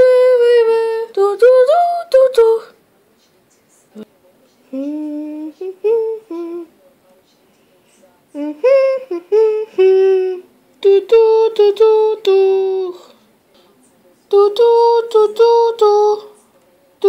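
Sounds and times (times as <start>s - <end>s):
person humming a tune: 4.7s - 6.7s, 8.4s - 13.1s, 14.3s - 16.3s.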